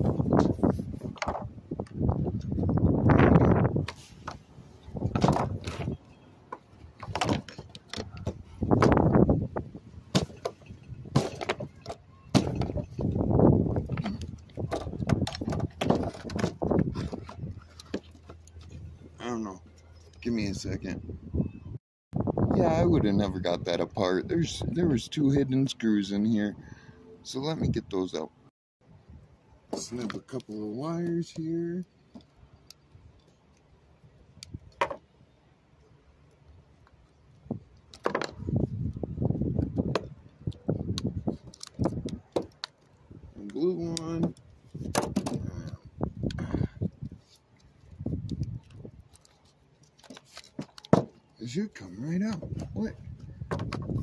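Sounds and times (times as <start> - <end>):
plastic scraping and rattling: 5.0 - 9.0, 13.8 - 18.8, 48.4 - 51.2
plastic knocks and clacks: 13.9 - 18.4, 53.5 - 54.0.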